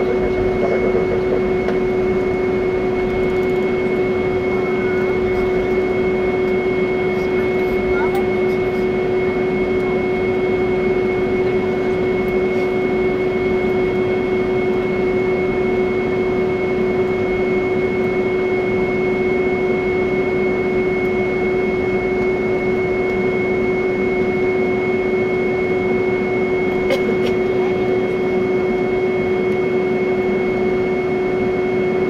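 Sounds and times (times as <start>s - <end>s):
jet engines humming with whine: 0.0s - 32.0s.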